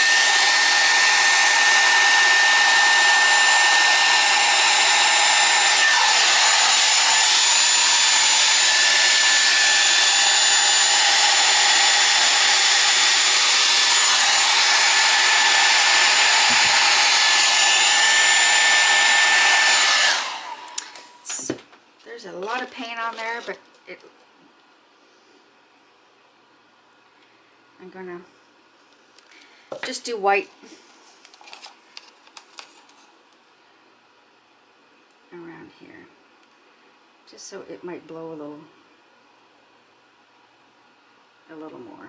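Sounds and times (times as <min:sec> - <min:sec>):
hair dryer running: 0:00.0 - 0:21.6.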